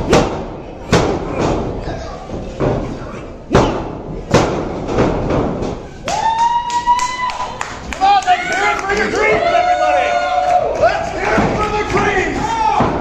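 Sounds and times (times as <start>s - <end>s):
crowd chatter: 0.0s - 4.8s
crowd calling out: 6.0s - 13.0s.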